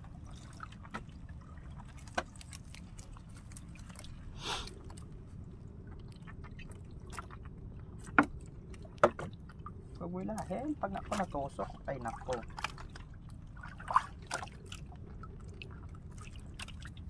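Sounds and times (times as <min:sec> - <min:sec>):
water splashing: 0:00.0 - 0:17.0
wet net knocking against hull: 0:09.0 - 0:09.4.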